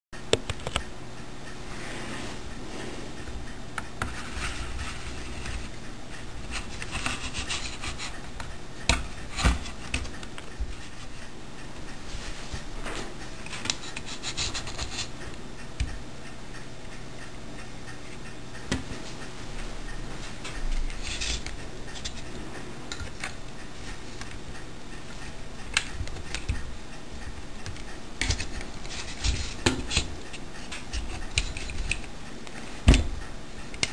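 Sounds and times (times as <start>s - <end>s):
steady low hum: 0.2s - 33.9s
hands rubbing and scraping casing: 6.4s - 11.3s, 12.2s - 15.2s, 20.5s - 24.4s, 27.6s - 32.6s.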